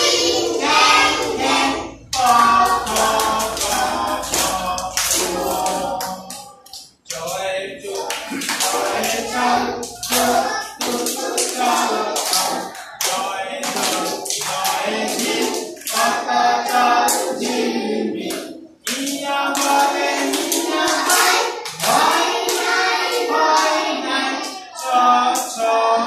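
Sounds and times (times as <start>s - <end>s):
children and teacher singing: 0.0s - 26.0s
hands clapping: 1.2s - 16.1s, 18.2s - 23.7s.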